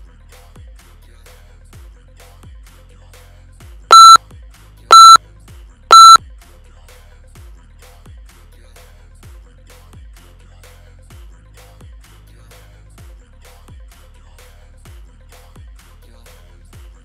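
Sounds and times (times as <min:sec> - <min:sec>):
timer beeps: 0:03.9 - 0:04.2, 0:04.9 - 0:05.2, 0:05.9 - 0:06.2.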